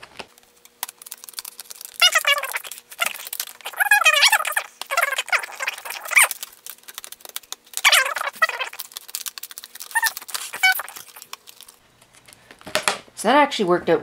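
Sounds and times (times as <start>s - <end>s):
scissors cutting plastic: 0.1s - 12.3s
plastic squeaking and creaking: 0.8s - 11.8s.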